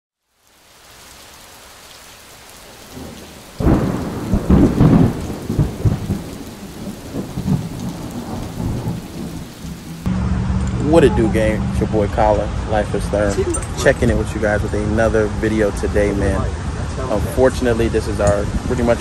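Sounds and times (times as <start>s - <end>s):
steady rain: 0.2s - 10.1s, 10.8s - 19.0s
rolling thunder: 2.8s - 10.1s.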